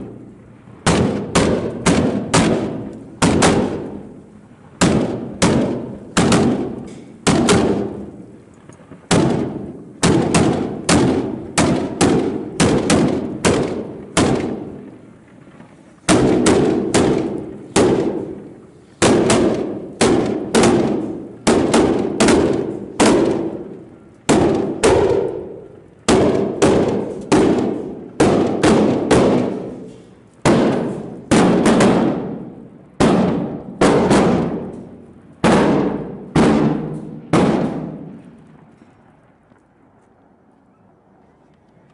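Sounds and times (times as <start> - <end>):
firework rockets exploding: 0.0 - 38.8.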